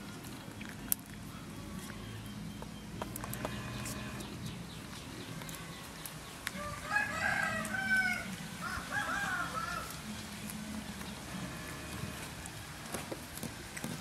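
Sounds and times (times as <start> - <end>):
chicken calling: 6.5 - 10.1.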